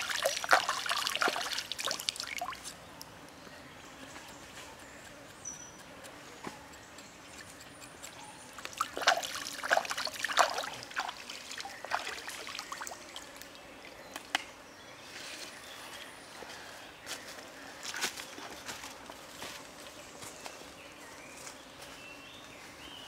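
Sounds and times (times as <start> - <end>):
water splashing: 0.0 - 2.7, 8.6 - 13.5
stream trickling: 0.0 - 2.8, 8.6 - 14.0.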